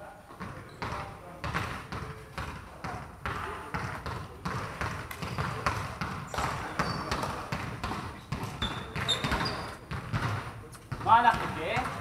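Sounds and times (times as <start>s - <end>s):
basketballs bouncing on wood floor: 0.3s - 12.0s
high squeak: 8.6s - 9.8s.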